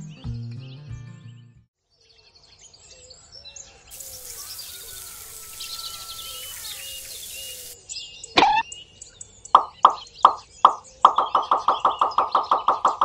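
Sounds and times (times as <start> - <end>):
birds chirping: 2.6 - 13.0
steady hiss: 3.9 - 7.8.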